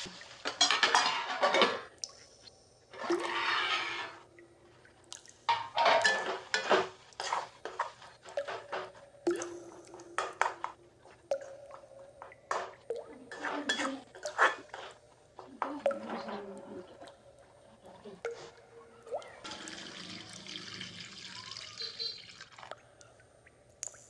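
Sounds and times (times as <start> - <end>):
metal spatula scraping metal pan: 3.0 - 4.2, 5.7 - 8.0.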